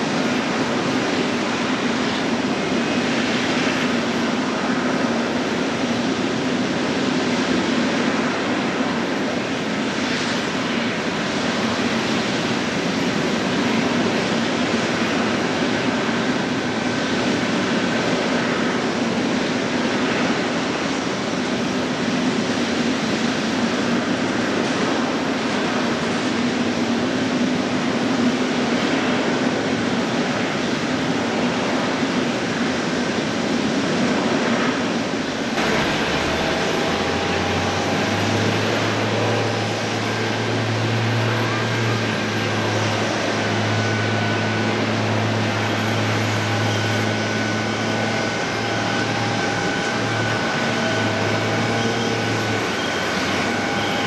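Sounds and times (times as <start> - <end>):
airliner jet engines humming: 0.0 - 54.0
high engine whines: 0.0 - 54.0
low drone: 34.2 - 54.0.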